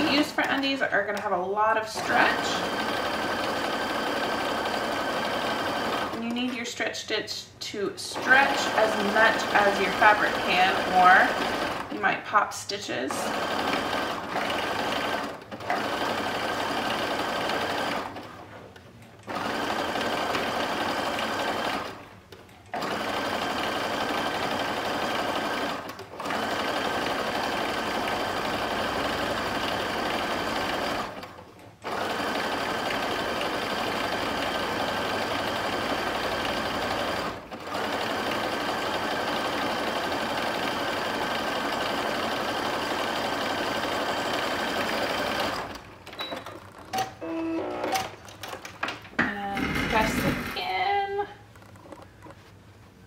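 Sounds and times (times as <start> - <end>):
sewing machine running: 0.0 - 6.3, 8.1 - 12.2, 13.1 - 18.5, 19.3 - 22.1, 22.7 - 48.6, 49.3 - 50.8.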